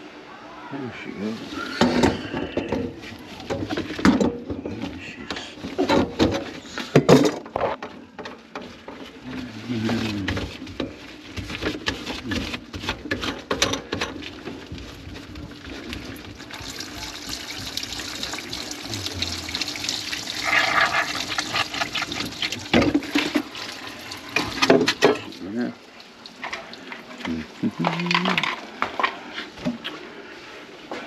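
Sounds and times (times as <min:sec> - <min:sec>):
water running in kitchen sink: 0:14.5 - 0:27.9.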